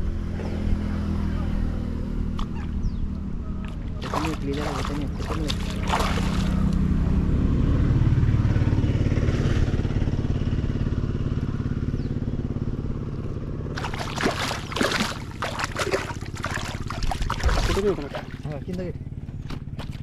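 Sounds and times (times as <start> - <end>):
motor droning: 2.8 - 8.8
fish splashing in water: 3.7 - 6.9, 13.7 - 18.8, 19.4 - 20.0.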